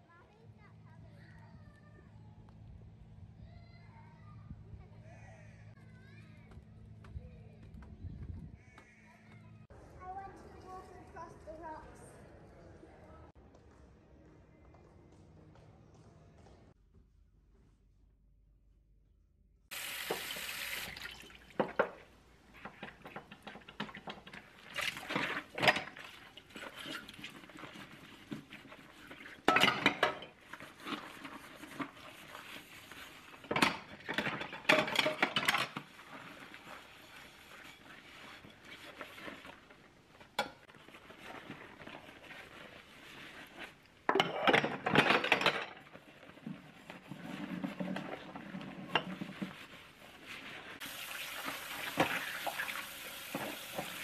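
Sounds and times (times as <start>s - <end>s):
soft dish handling sounds: 21.5s - 50.8s
ceramic dishes clinking in sink: 29.5s - 30.4s.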